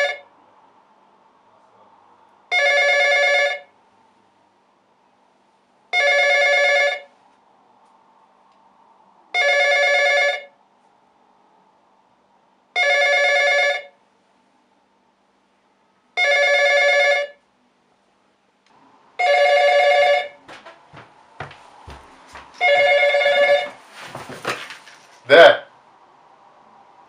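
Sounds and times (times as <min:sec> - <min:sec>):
telephone ringing: 0:00.0 - 0:00.2, 0:02.5 - 0:03.7, 0:05.9 - 0:07.1, 0:09.4 - 0:10.5, 0:12.8 - 0:14.0, 0:16.2 - 0:17.4, 0:19.2 - 0:20.4, 0:22.6 - 0:23.8.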